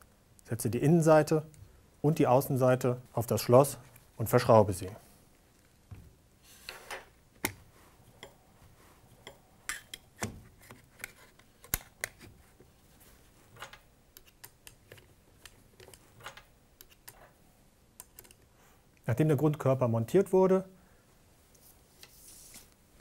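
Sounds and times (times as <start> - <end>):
metal parts clicking and tapping: 13.6 - 17.3.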